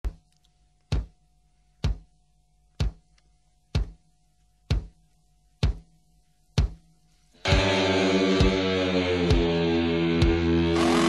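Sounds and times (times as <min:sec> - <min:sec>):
drum-like thumps: 0:00.9 - 0:01.2, 0:01.8 - 0:02.1, 0:02.8 - 0:03.1, 0:03.7 - 0:04.0, 0:04.6 - 0:05.0, 0:05.6 - 0:06.9, 0:07.5 - 0:11.0.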